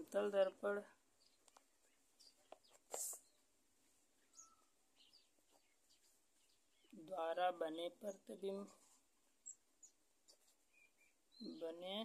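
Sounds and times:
faint bird chirps: 1.1s - 7.2s, 9.2s - 12.0s.

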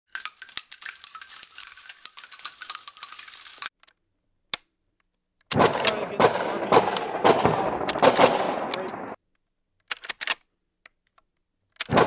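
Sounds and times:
metallic jingling and clinking: 0.1s - 3.7s.

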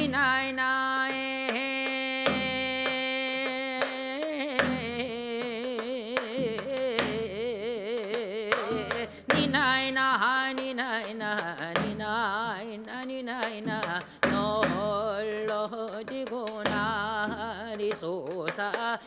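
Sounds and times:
man singing folk song: 0.0s - 19.0s
hourglass drum strokes: 8.5s - 9.6s.

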